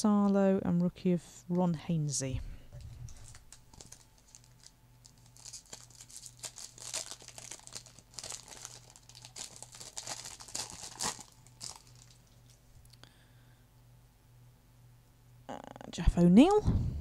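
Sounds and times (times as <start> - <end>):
plastic wrapper crinkling: 3.1 - 13.0.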